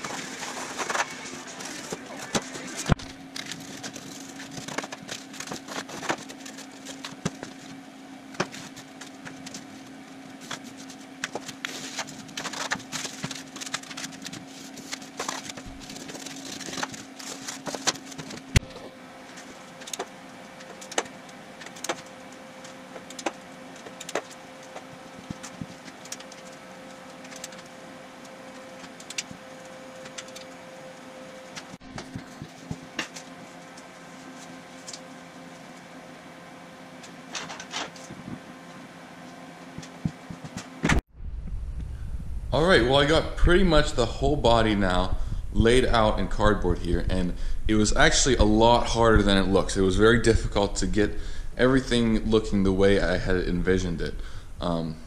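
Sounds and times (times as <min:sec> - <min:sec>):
cardboard sheets handled: 0:00.0 - 0:18.6
steady background hum: 0:00.0 - 0:55.0.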